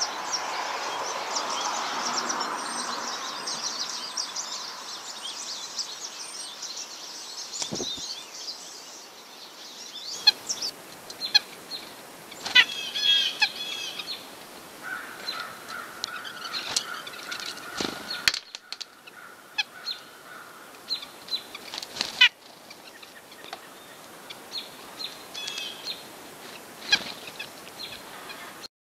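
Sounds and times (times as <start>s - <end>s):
birds chirping: 0.0s - 28.7s
bird nasal calls: 12.4s - 14.2s, 14.8s - 26.1s, 26.8s - 28.7s.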